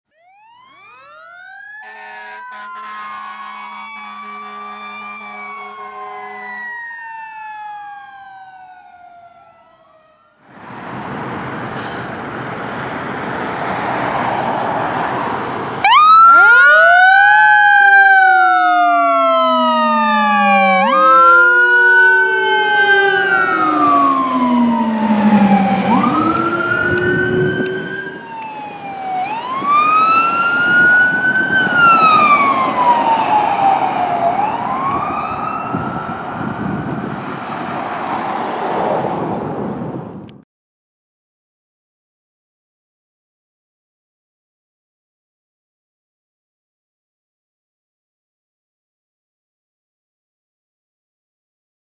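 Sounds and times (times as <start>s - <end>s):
electronic siren wail: 0.1s - 10.4s, 15.8s - 38.5s
low siren tone: 0.1s - 10.4s, 15.8s - 37.6s
mechanical siren wailing: 0.1s - 10.4s, 15.8s - 37.2s.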